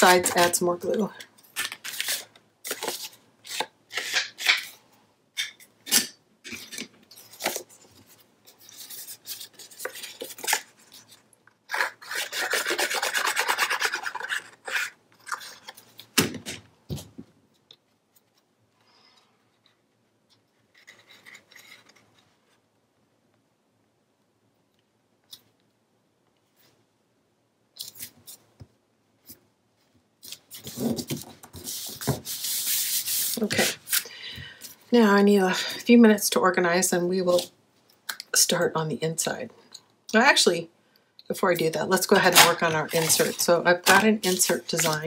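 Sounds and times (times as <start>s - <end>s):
faint paper handling: 42.2s - 45.0s.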